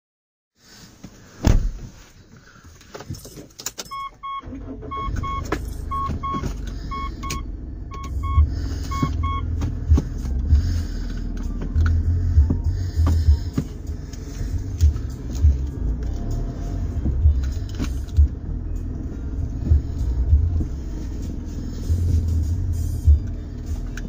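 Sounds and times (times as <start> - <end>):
loud thump: 1.4 - 1.9
dashboard warning chime beeping: 3.8 - 9.6
car engine idling: 4.1 - 24.0.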